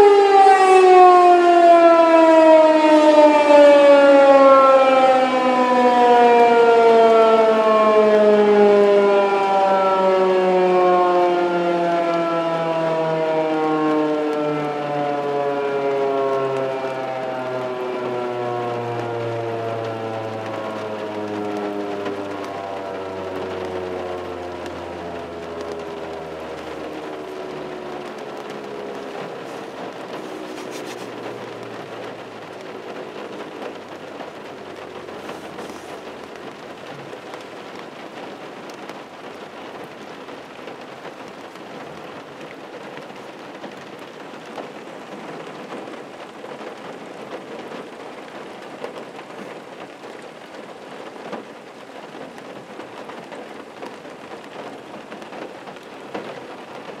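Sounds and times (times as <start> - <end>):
rain drumming on a car: 0.0 - 57.0
warning siren winding down: 0.0 - 57.0.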